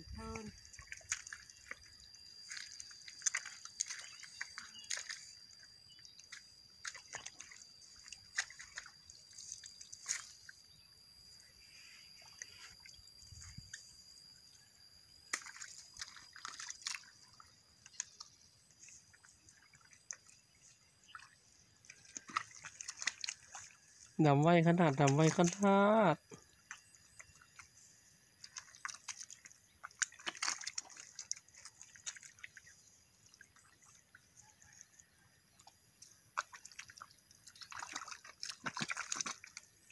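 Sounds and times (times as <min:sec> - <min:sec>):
muddy water dripping: 0:00.0 - 0:11.6, 0:12.2 - 0:39.9
squelching mud: 0:00.0 - 0:14.0, 0:15.2 - 0:39.9.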